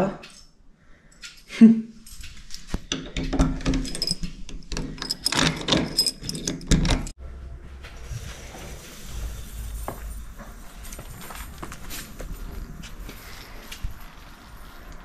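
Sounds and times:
steady low rumble: 7.2 - 15.0.

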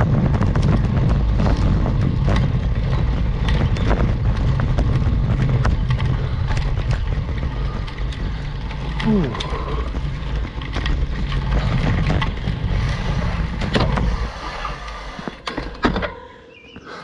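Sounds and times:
wind rumbling on microphone: 0.0 - 16.7.

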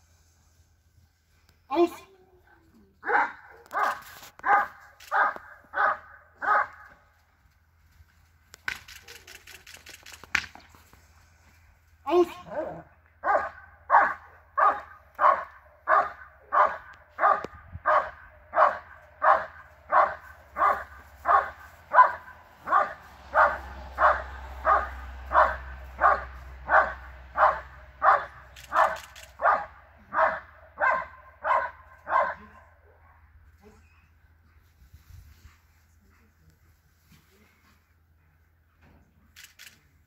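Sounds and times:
dog barking: 3.0 - 6.9, 12.7 - 33.2.

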